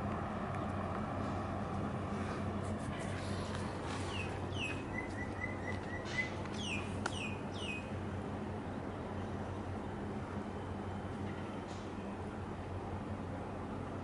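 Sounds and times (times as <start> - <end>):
steady low hum: 0.0 - 14.0
small birds chirping: 3.9 - 7.9.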